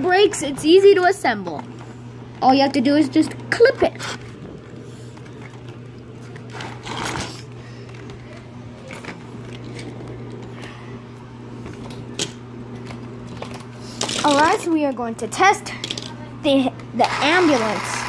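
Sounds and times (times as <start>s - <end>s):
steady low hum: 0.0s - 18.0s
plastic scrape: 6.4s - 7.5s.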